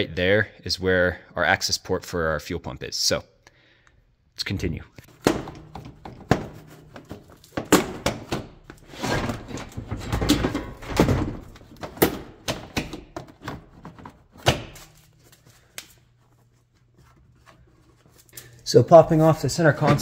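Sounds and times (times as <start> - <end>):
plastic scraping and rattling: 5.1 - 15.1.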